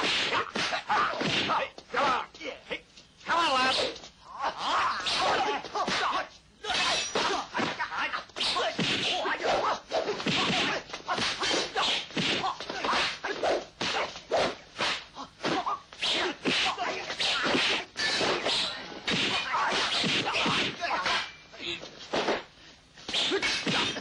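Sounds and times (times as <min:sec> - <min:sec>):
punch and kick impacts: 0:00.0 - 0:01.7, 0:05.1 - 0:21.3, 0:23.1 - 0:24.0.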